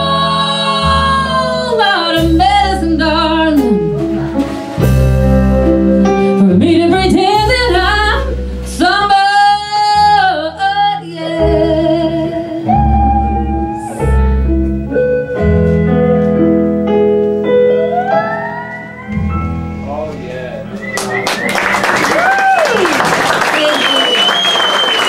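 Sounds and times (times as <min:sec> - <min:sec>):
woman singing with vibrato: 0:00.0 - 0:03.8, 0:06.4 - 0:14.0
electric keyboard and band: 0:00.0 - 0:25.0.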